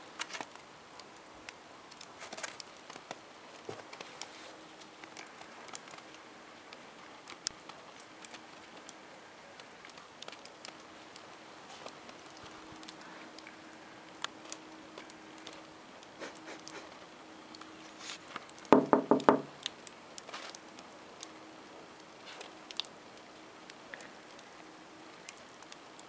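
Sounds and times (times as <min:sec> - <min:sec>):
loud knocks: 0:18.7 - 0:19.5.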